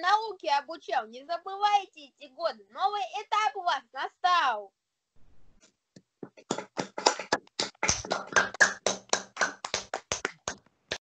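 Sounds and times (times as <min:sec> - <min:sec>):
children clapping: 0:06.4 - 0:11.0.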